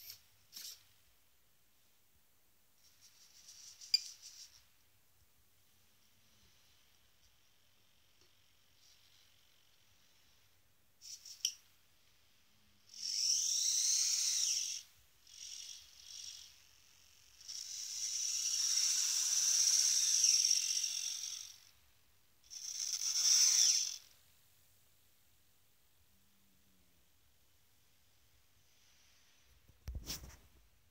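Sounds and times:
servo motors whining: 12.9 - 21.7, 22.5 - 24.2.

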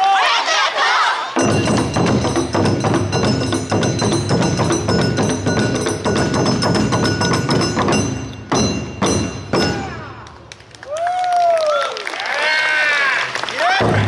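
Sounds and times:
fast dense drumming: 1.4 - 10.0
metallic percussion ringing: 1.4 - 10.2.

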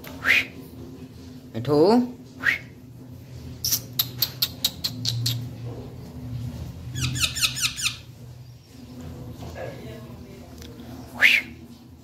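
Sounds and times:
parakeets squeaking: 6.8 - 8.2.

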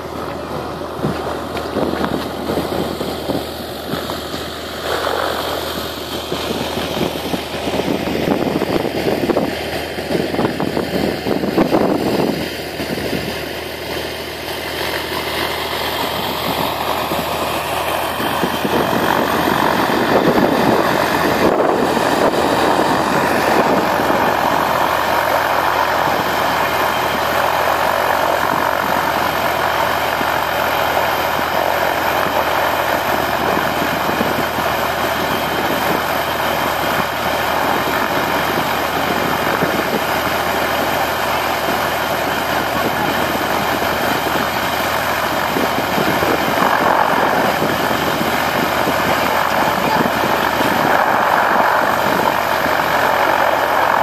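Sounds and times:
helicopter engine idling: 0.0 - 54.0.

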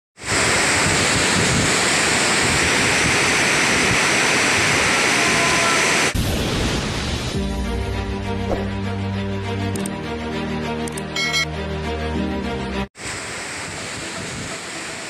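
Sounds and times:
heavy rain pouring: 0.2 - 7.7, 13.0 - 15.0.

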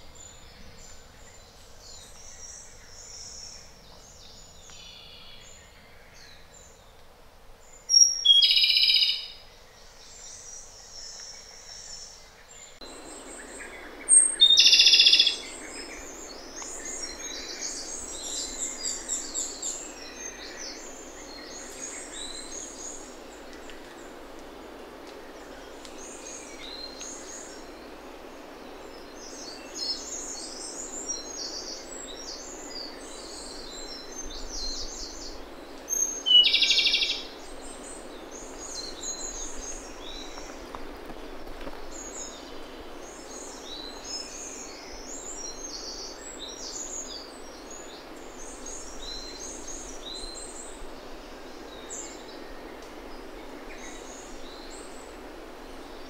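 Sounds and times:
steady background hiss: 0.0 - 56.0
bird song with rapid trill: 7.7 - 23.1, 29.0 - 40.4
soft high bird chirps: 8.0 - 9.4.

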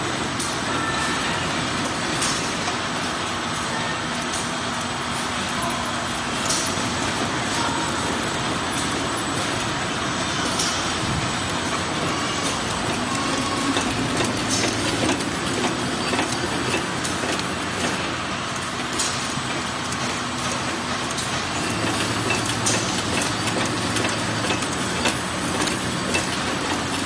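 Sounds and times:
machinery clattering: 6.0 - 27.0.

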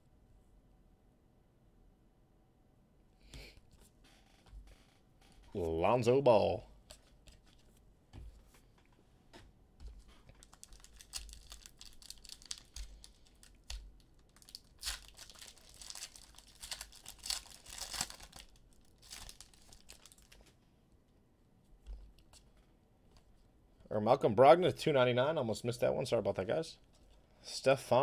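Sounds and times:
foil wrapper crinkling: 10.2 - 20.5.

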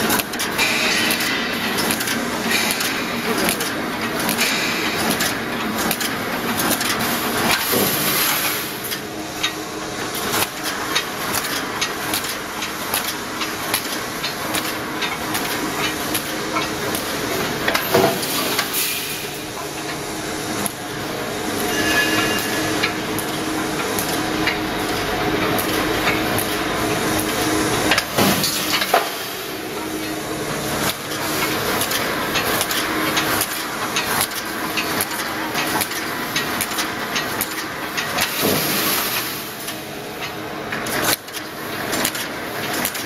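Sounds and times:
machine clanks and knocks: 0.0 - 20.0, 21.6 - 30.2
steady machinery noise: 0.0 - 43.0.

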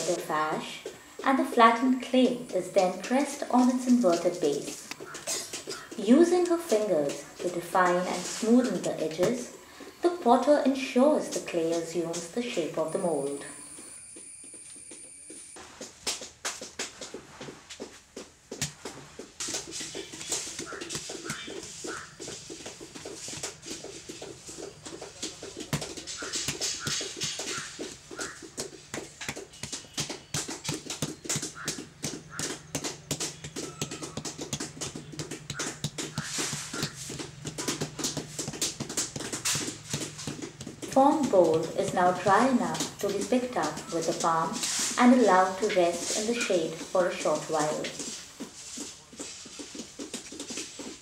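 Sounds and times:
hands slapping wet clay: 18.6 - 44.9.

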